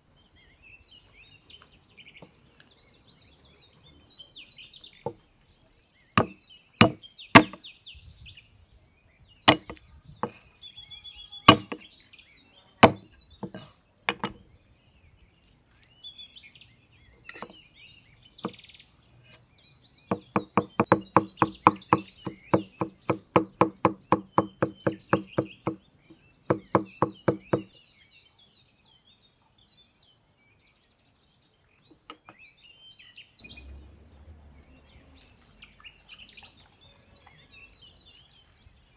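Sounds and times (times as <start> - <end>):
cleaver chopping on wooden board: 6.2 - 7.6, 9.5 - 10.4, 11.5 - 11.9, 12.8 - 14.4, 17.3 - 17.6, 20.1 - 25.8, 26.5 - 27.7.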